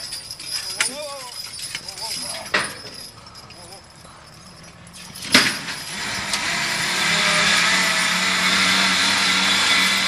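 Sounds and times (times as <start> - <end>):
hydraulic pump whining: 4.6 - 10.0.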